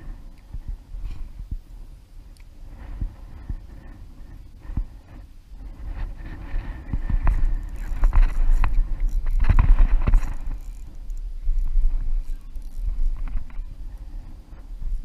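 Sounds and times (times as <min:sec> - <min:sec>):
wind buffeting microphone: 0:00.0 - 0:15.0
fishing reel knocks and clicks: 0:06.7 - 0:14.1.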